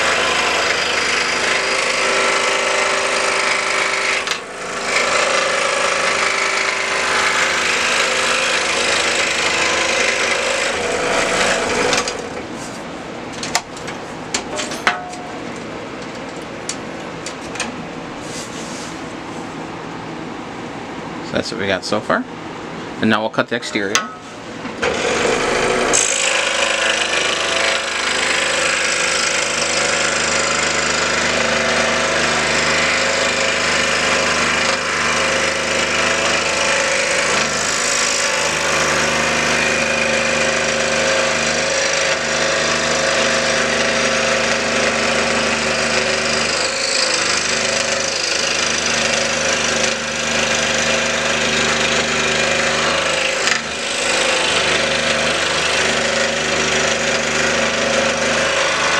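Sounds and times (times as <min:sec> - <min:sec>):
scroll saw cutting wood: 0:00.0 - 0:12.5, 0:24.8 - 0:58.9.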